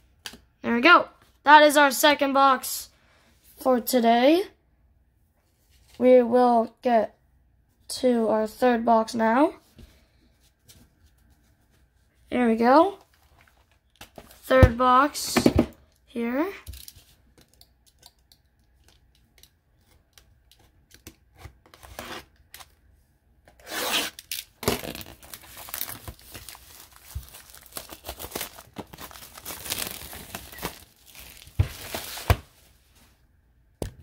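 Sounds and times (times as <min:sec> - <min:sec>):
plastic wrap tearing and crinkling: 0:23.6 - 0:32.7.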